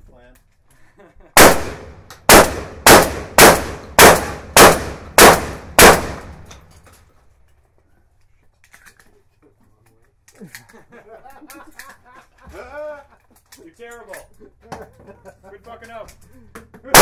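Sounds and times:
shotgun shots with echo: 0:01.4 - 0:06.5.

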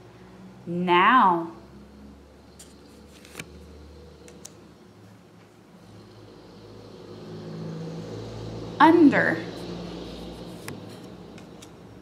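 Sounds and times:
steady low hum: 0:00.0 - 0:12.0
paper flashcard clicks: 0:03.1 - 0:03.5.

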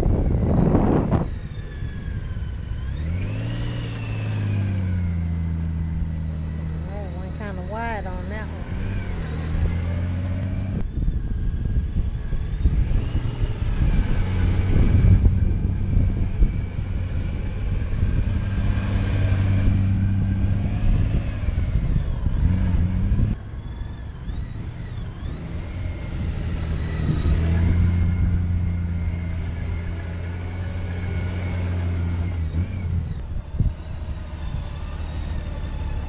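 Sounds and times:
motorcycle engine at low revs: 0:00.0 - 0:36.0.

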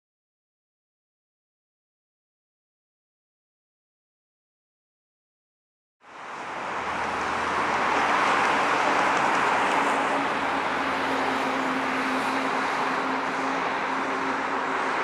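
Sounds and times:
jet engines rushing: 0:06.1 - 0:15.0.

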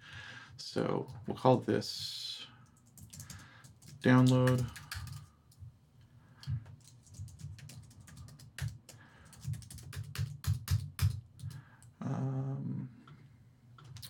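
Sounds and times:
computer keyboard typing: 0:02.7 - 0:05.6, 0:06.7 - 0:11.6
man humming: 0:12.0 - 0:13.0.

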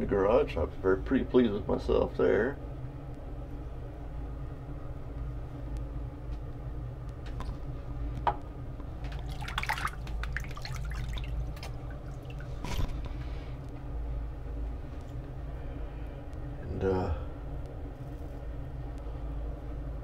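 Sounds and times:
steady low hum: 0:00.0 - 0:20.0
water splashing at a sink: 0:09.0 - 0:13.1.

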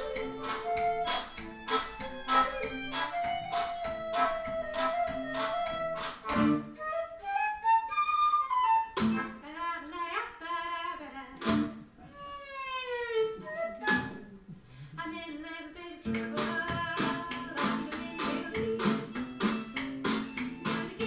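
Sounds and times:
swing band playing: 0:00.0 - 0:07.2, 0:08.6 - 0:09.4, 0:16.3 - 0:21.0
violin melody with sliding note: 0:00.0 - 0:07.5, 0:12.1 - 0:14.0.

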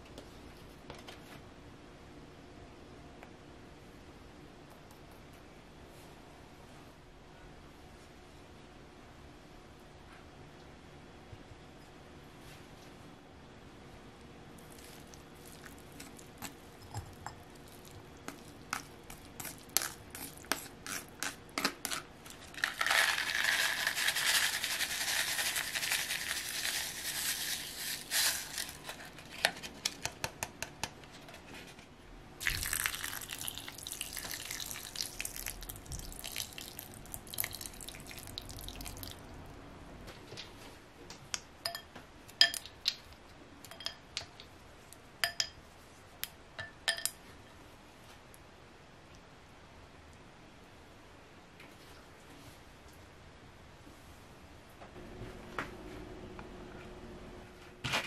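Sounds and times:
ice cubes clinking on glass: 0:22.6 - 0:28.8
tea being poured: 0:32.4 - 0:39.2.

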